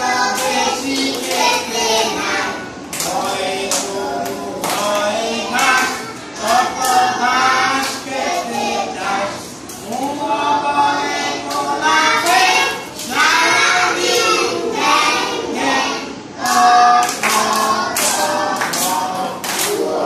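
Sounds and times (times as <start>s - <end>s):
children singing in unison: 0.0s - 20.0s
hand claps: 2.9s - 5.0s, 16.4s - 19.8s.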